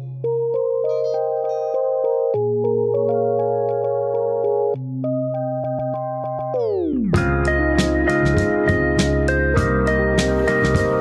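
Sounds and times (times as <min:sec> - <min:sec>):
held keyboard chord: 0:00.0 - 0:11.0
drum beat: 0:10.2 - 0:11.0.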